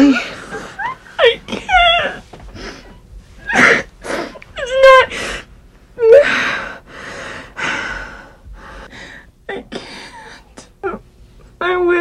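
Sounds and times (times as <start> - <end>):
woman whimpering: 0.0 - 5.3, 6.0 - 6.7, 9.5 - 11.0
woman sobbing: 0.0 - 5.4, 6.0 - 6.7, 9.5 - 11.0.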